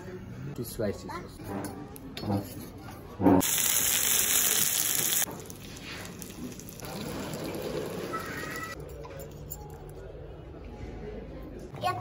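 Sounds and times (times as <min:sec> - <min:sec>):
sizzler plate hissing: 0:03.4 - 0:06.2.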